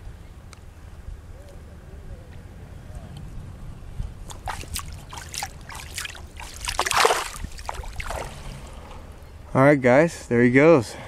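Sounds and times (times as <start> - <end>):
fish splashing in shallow water: 4.2 - 9.0.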